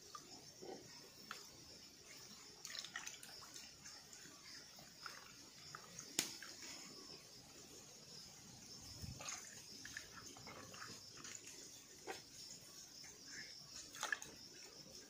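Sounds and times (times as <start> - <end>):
water splashing in a pot: 2.3 - 7.2, 8.8 - 12.2, 13.8 - 14.8.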